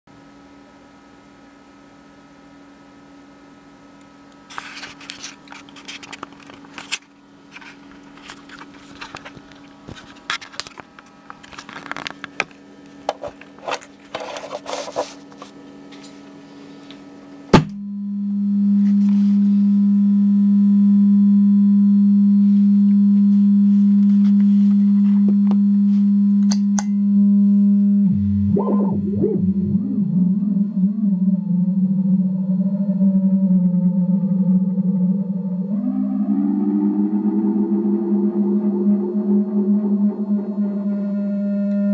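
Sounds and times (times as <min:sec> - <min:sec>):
faint mains hum: 0:00.1 - 0:41.9
low electronic tone warbling: 0:17.7 - 0:41.9.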